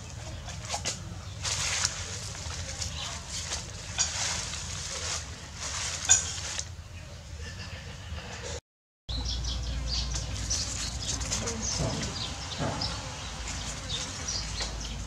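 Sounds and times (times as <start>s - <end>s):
leafy greens rustling: 0.0s - 7.2s, 9.7s - 15.0s
small birds chirping: 0.0s - 7.2s, 9.1s - 15.0s.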